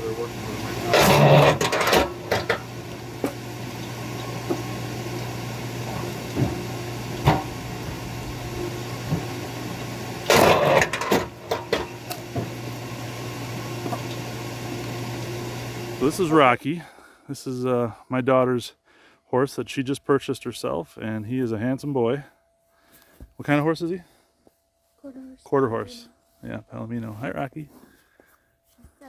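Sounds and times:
log splitter motor humming: 0:00.0 - 0:16.6.

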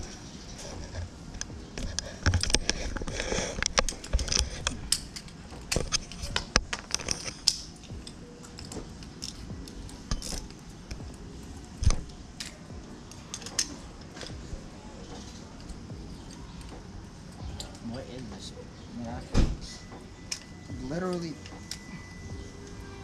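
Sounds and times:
metal socket and wrench clicking: 0:03.6 - 0:11.0, 0:12.0 - 0:14.4.

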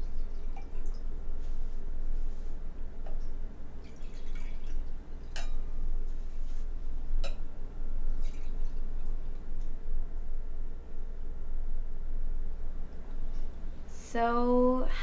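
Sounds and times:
steady low hum: 0:00.0 - 0:15.0
liquid dripping: 0:03.0 - 0:05.6, 0:08.1 - 0:09.7.

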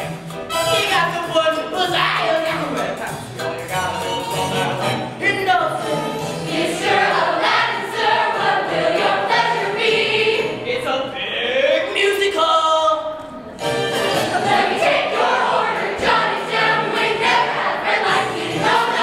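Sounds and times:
chorus singing over music: 0:05.8 - 0:10.7, 0:13.6 - 0:19.0.

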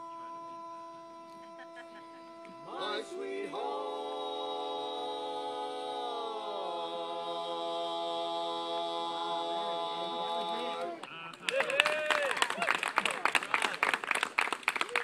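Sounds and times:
men singing a cappella harmony: 0:00.0 - 0:11.0.

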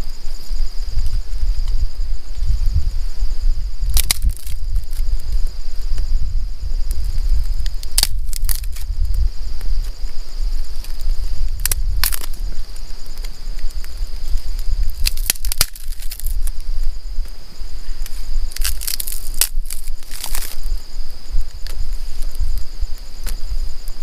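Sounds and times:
high-pitched insect drone: 0:00.0 - 0:24.0
dry sticks snapping: 0:03.9 - 0:05.1, 0:07.6 - 0:08.9, 0:11.6 - 0:12.4, 0:13.2 - 0:16.6, 0:18.0 - 0:20.7.

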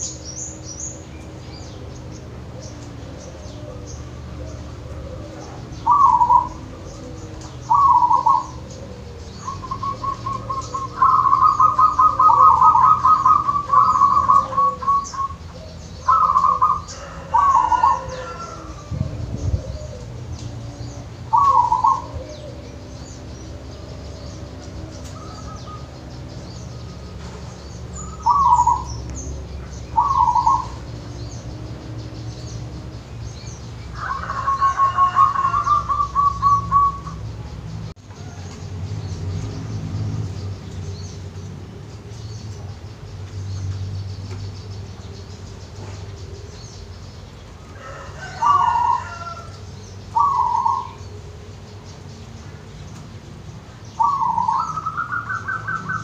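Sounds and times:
dove cooing: 0:00.0 - 0:33.1, 0:33.9 - 0:37.3, 0:47.7 - 0:51.1, 0:54.0 - 0:56.0
small birds chirping: 0:00.0 - 0:56.0.

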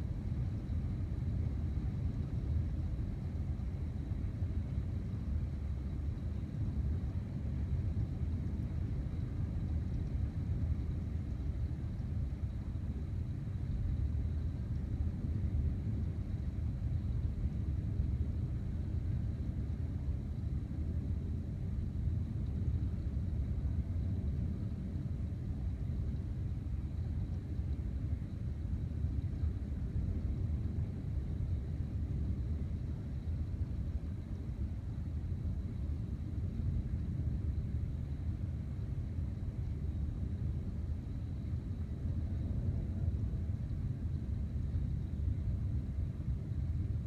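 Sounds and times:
continuous low thunder rumble: 0:00.0 - 0:47.0.

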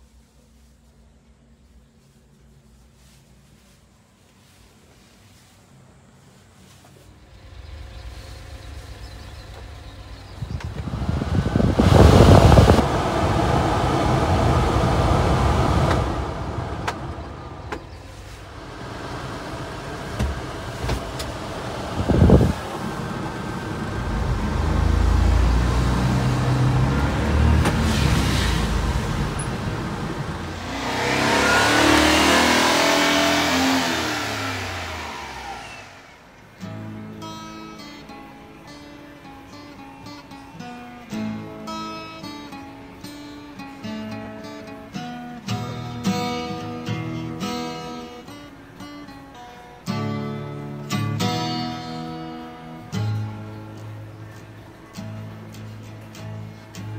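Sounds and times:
heater blower rushing air: 0:06.7 - 0:36.8
small engine revving: 0:07.2 - 0:37.0.

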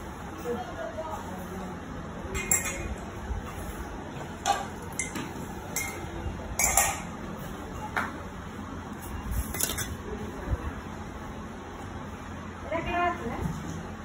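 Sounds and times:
metal kitchenware clinking on pot: 0:02.3 - 0:03.0, 0:04.4 - 0:07.2, 0:09.5 - 0:10.0.

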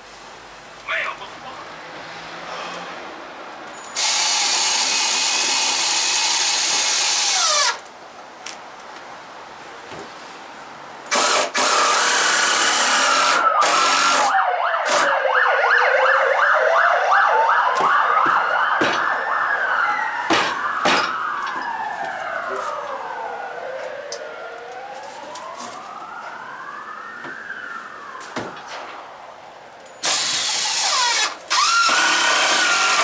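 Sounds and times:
siren wailing: 0:11.9 - 0:30.1
second siren: 0:13.0 - 0:30.1.

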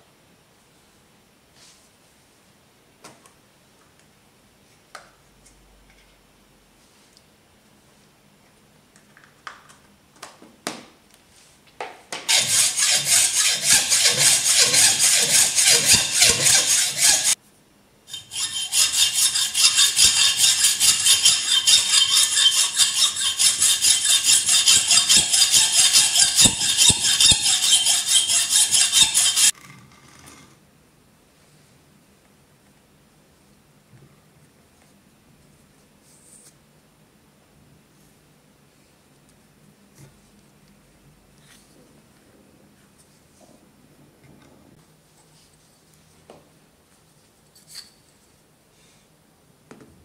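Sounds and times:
hacksaw cutting stone: 0:12.3 - 0:17.4, 0:18.1 - 0:29.5.

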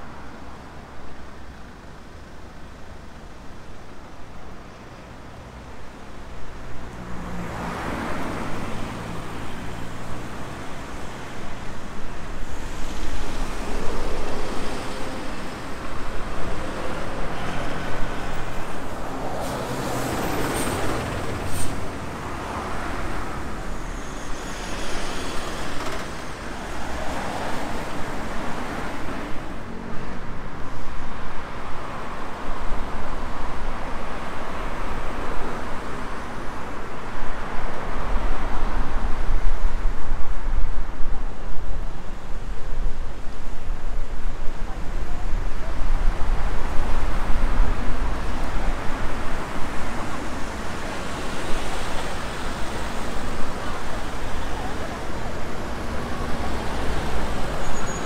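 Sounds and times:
vehicles passing: 0:04.5 - 0:58.0.

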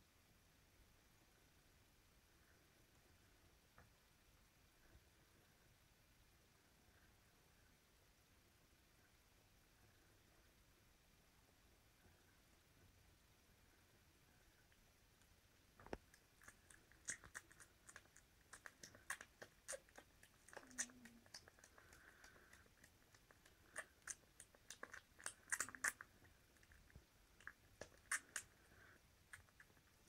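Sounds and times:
puppies mouthing and nibbling: 0:14.7 - 0:30.0.

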